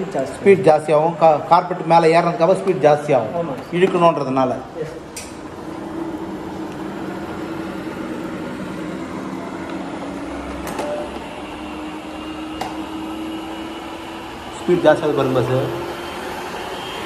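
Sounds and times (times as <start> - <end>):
robot vacuum motor humming: 5.6 - 17.0.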